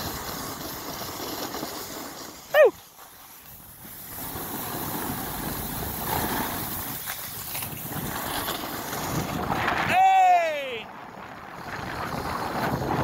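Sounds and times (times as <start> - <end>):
snowboard scraping over snow: 0.0 - 13.0
wind on microphone: 3.5 - 13.0.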